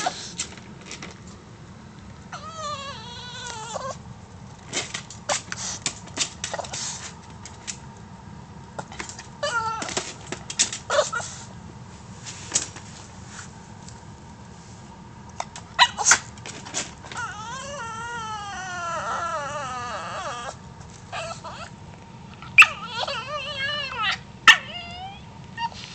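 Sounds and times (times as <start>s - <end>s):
dog's long wavering cry: 2.3s - 4.0s, 9.4s - 10.1s, 17.1s - 21.8s, 22.4s - 25.8s
small dog yelping and whimpering: 2.3s - 4.0s, 9.4s - 10.1s, 10.9s - 11.4s, 15.8s - 16.3s, 17.1s - 21.8s, 22.4s - 25.8s.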